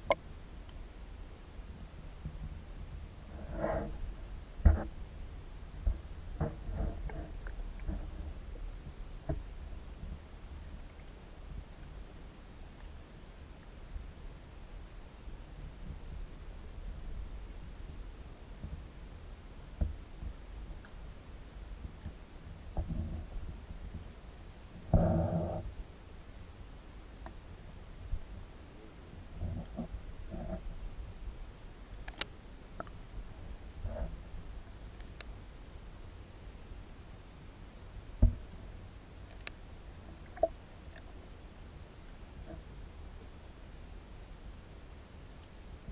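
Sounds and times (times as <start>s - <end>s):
muffled underwater rumble: 1.7s - 12.4s, 27.9s - 32.0s, 39.8s - 41.4s
faint clicks: 4.6s - 45.9s.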